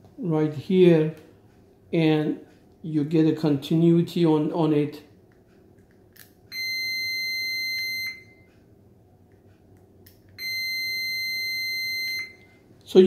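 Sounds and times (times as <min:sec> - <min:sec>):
multimeter continuity beep: 0:06.5 - 0:08.5, 0:10.4 - 0:12.6.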